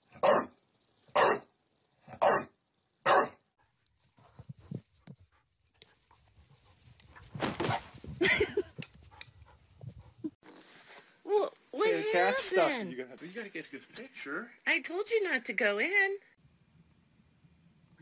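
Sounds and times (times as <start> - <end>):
dog barking: 0.2 - 0.5, 1.2 - 1.5, 2.1 - 3.4.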